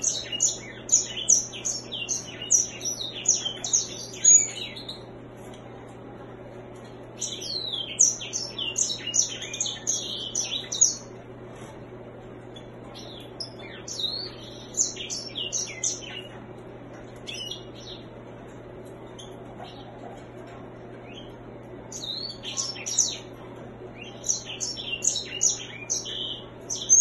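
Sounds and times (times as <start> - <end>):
finch singing twittering song: 0.0 - 5.1, 7.2 - 11.2, 12.6 - 16.4, 17.1 - 18.1, 21.0 - 23.4, 24.0 - 27.0
faint steady hum: 0.0 - 27.0.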